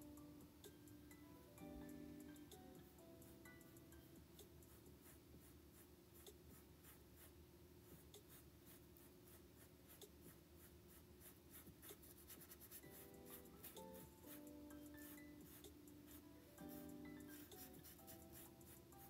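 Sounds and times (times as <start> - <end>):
paintbrush brushing on canvas: 4.7 - 14.4.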